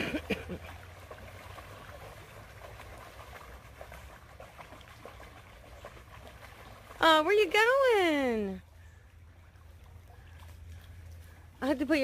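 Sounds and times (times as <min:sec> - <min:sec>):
creek water rushing over rocks: 0:00.0 - 0:12.0
low water rumble: 0:00.0 - 0:12.0
small water splashes: 0:00.0 - 0:12.0.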